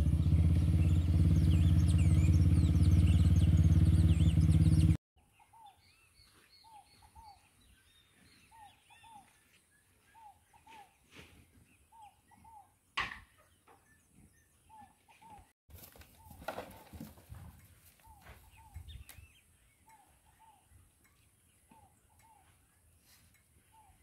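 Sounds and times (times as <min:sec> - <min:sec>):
dirt bike engine running: 0:00.0 - 0:05.0
high bird chirps: 0:00.2 - 0:09.3.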